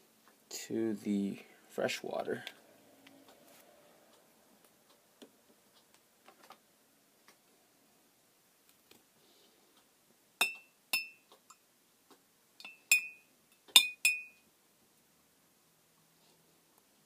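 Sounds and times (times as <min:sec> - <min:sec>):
metal spoon clinking in glass jar: 0:12.6 - 0:14.4.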